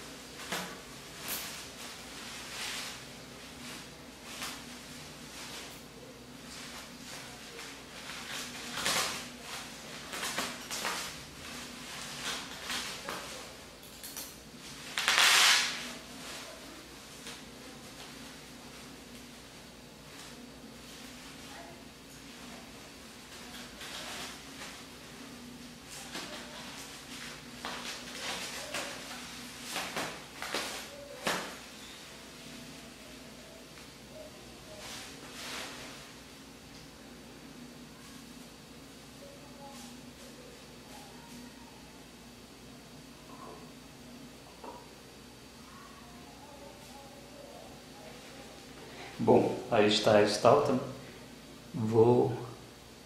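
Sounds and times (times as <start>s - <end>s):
bubble wrap crinkling: 0.1s - 13.8s, 14.6s - 33.5s, 34.6s - 36.2s.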